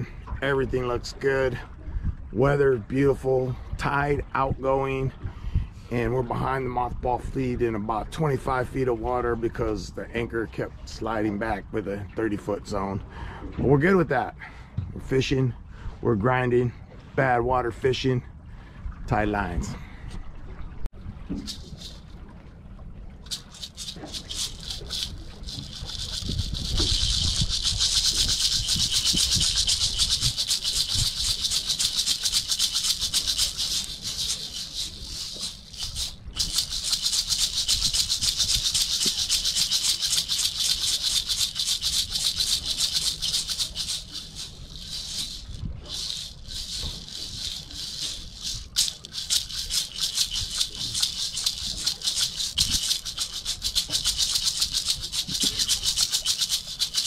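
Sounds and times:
maracas rattling: 21.3 - 22.1, 23.2 - 57.0.

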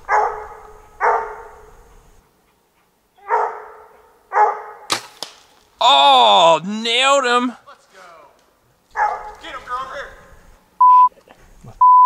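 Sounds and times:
dog barking: 0.0 - 1.7, 3.2 - 4.9, 8.9 - 9.4.

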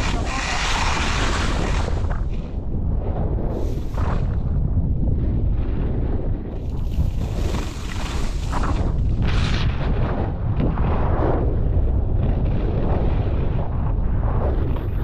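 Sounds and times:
skis carving on packed snow: 0.0 - 2.4, 6.6 - 9.6
wind buffeting microphone: 0.0 - 15.0.

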